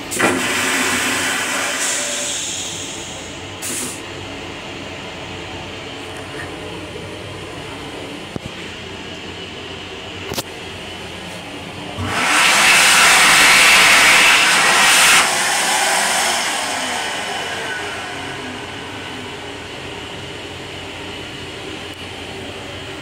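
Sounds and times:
hand dryer blowing: 0.0 - 4.0, 11.8 - 22.0
railcar rumble: 0.0 - 23.0.

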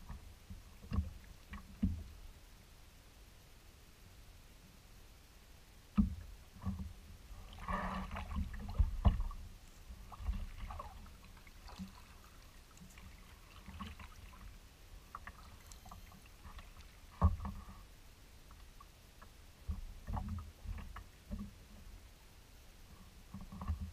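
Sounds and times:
paddle strokes splashing: 6.6 - 17.9.

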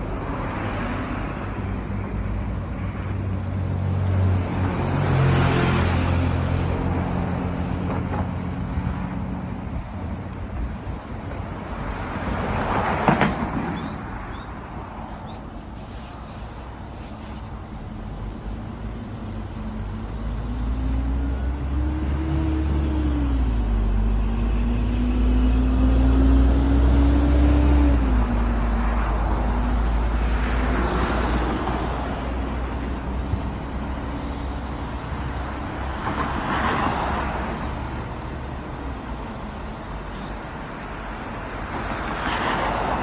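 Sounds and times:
vehicles swishing past on tyres: 0.0 - 43.0.

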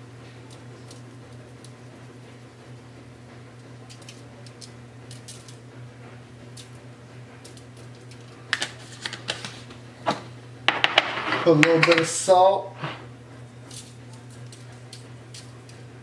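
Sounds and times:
steady low hum: 0.0 - 16.0
clicks and knocks: 10.1 - 12.2.

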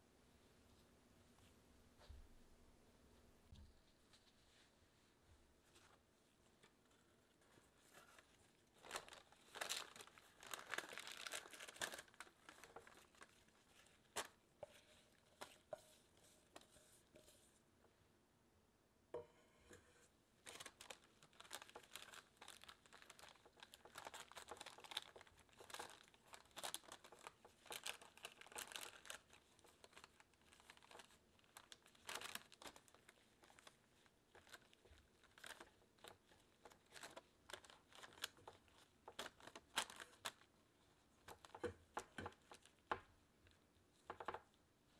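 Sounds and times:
paper crinkling: 5.6 - 17.4, 20.4 - 44.9.

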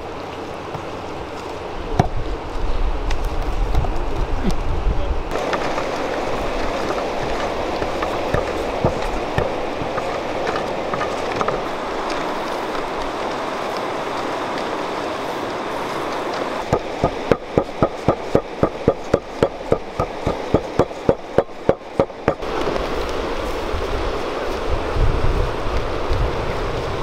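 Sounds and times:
wind noise on microphone: 1.8 - 27.0
stone pounding wet mixture in bowl: 6.6 - 11.6, 16.7 - 22.4.

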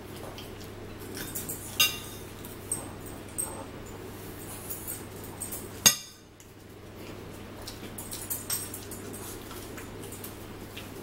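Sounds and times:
steady low hum: 0.0 - 11.0
cutlery clinking against plates: 1.1 - 3.7, 4.5 - 6.2.

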